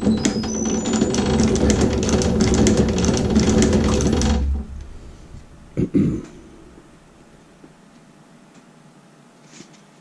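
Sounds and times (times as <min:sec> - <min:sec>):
motor hum: 0:00.0 - 0:08.6
rapid stapling clicks: 0:00.2 - 0:04.5.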